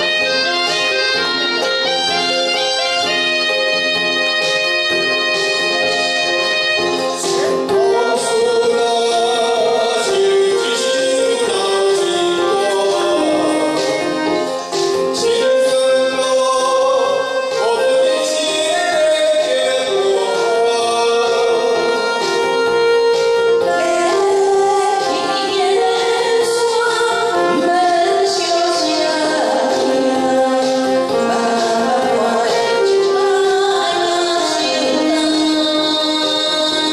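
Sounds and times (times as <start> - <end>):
backing track: 0.0 - 36.9
man singing: 7.1 - 22.7, 23.6 - 36.9
woman singing: 7.3 - 22.2, 23.4 - 36.9.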